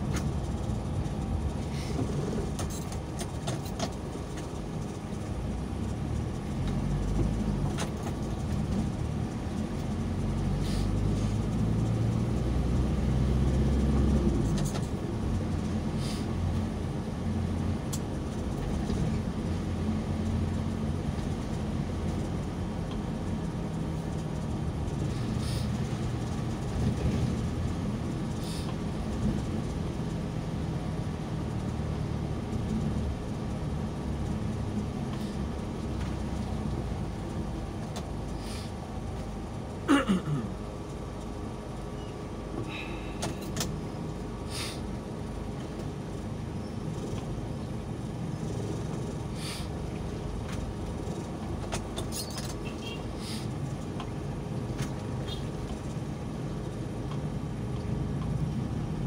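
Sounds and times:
car engine and road rumble: 0.0s - 59.0s.

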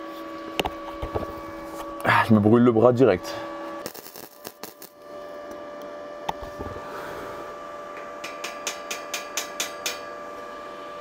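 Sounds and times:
welder humming: 0.0s - 11.0s
crackling welding arc bursts: 3.8s - 5.0s.

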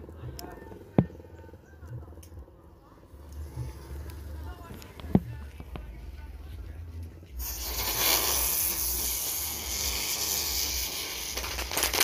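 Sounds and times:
firecracker hissing: 7.3s - 12.0s
firecracker cracks: 7.4s - 12.0s.

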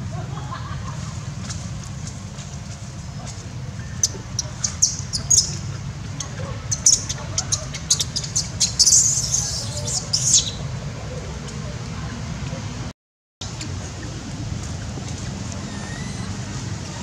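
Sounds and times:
monkeys shrieking: 3.8s - 10.7s, 15.6s - 16.5s.

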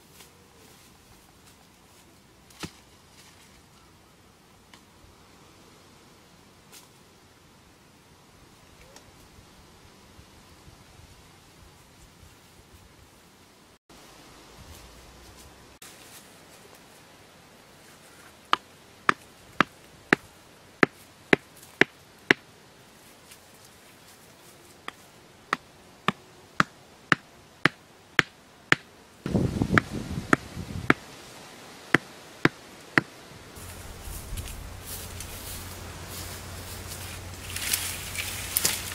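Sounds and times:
stakes hammered into ground: 24.9s - 28.9s
rustling and scraping: 33.6s - 38.9s.

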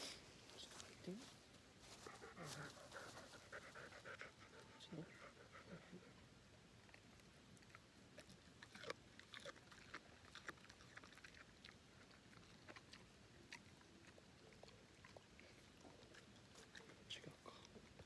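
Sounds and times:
dog chewing crunchy treats: 6.7s - 18.0s.

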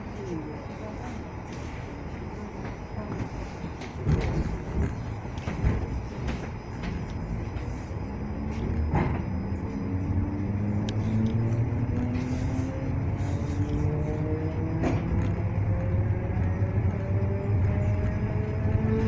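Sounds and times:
train rumble with knocks: 0.0s - 19.0s.

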